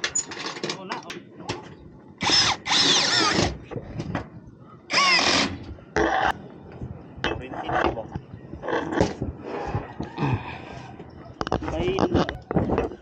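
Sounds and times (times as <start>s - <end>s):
cordless drill motor whine: 4.9s - 5.6s.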